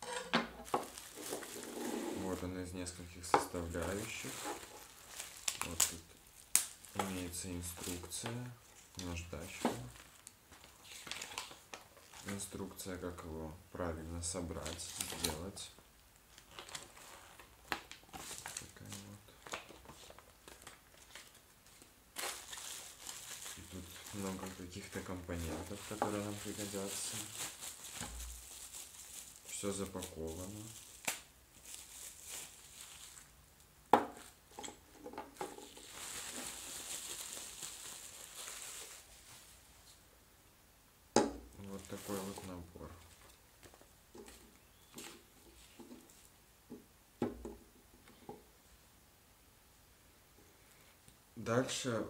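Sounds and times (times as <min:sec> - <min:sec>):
paper rustling and crinkling: 0:00.6 - 0:12.6, 0:14.5 - 0:15.6, 0:16.3 - 0:33.4, 0:34.2 - 0:40.0, 0:41.6 - 0:46.3.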